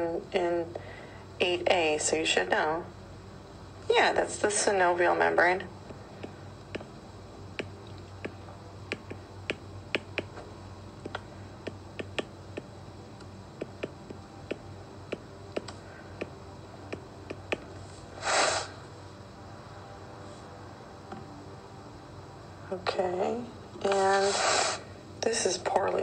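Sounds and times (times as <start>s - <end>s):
stylus tapping on glass screen: 7.6s - 10.3s, 11.0s - 12.7s, 13.6s - 17.7s
short hiss: 17.8s - 18.8s, 23.9s - 24.9s.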